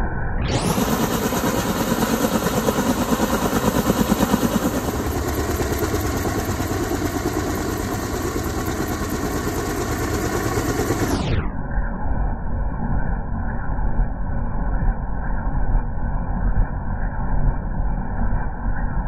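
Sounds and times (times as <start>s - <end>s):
helicopter engine noise: 0.4s - 11.5s
helicopter rotor beating: 0.5s - 11.4s.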